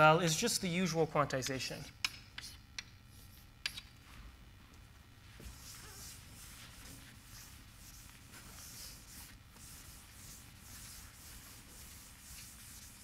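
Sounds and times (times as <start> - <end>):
chalk scratching on blackboard: 2.4 - 2.6, 5.4 - 13.0.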